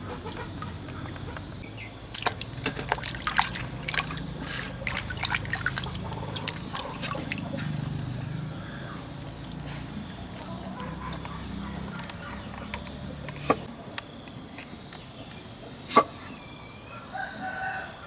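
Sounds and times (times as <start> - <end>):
water splashes and drips: 0.0 - 14.0
hands swishing potatoes in water: 2.1 - 7.9.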